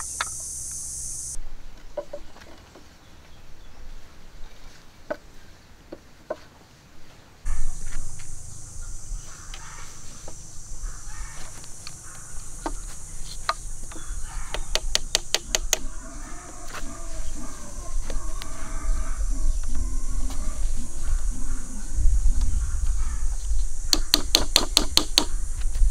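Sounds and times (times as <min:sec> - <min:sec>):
bamboo poles clicking: 0:00.0 - 0:00.5, 0:01.8 - 0:03.0, 0:11.4 - 0:16.0, 0:23.9 - 0:25.8
steady high hiss: 0:00.0 - 0:01.5, 0:06.6 - 0:25.9
sharp knocks: 0:12.6 - 0:15.9, 0:23.9 - 0:25.4.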